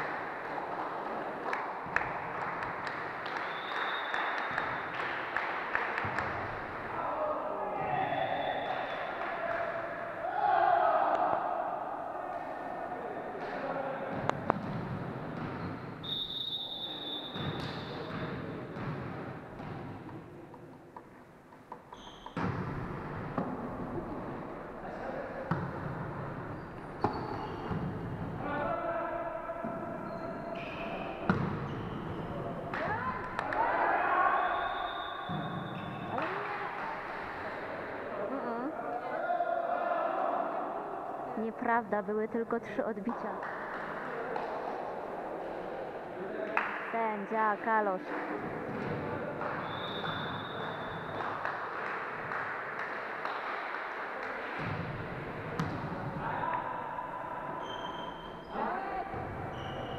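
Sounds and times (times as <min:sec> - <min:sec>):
people clapping: 0:00.0 - 0:07.0, 0:08.6 - 0:10.0, 0:32.7 - 0:33.8, 0:36.1 - 0:37.7, 0:43.0 - 0:45.0, 0:46.4 - 0:47.0, 0:48.0 - 0:54.7
sports hall noise: 0:00.0 - 0:59.9.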